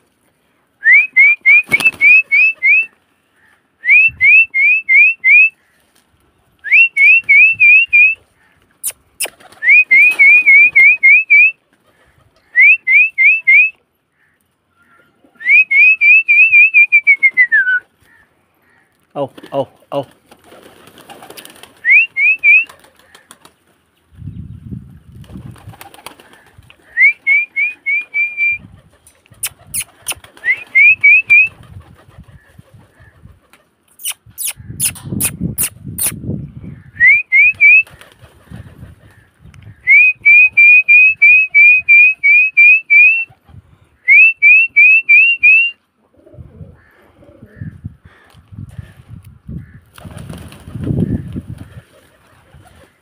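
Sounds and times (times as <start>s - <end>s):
pigeon wings flapping: 1.5s - 2.9s, 9.2s - 11.0s, 19.3s - 23.8s, 25.2s - 27.5s, 28.8s - 33.8s, 37.5s - 39.2s, 49.9s - 53.0s
quick high rising chirps: 34.0s - 36.2s.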